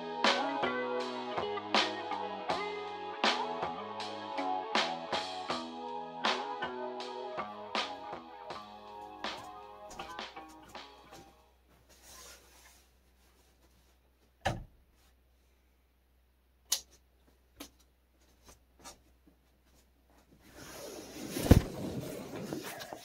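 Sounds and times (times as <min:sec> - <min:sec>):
rustling: 0:18.2 - 0:23.0.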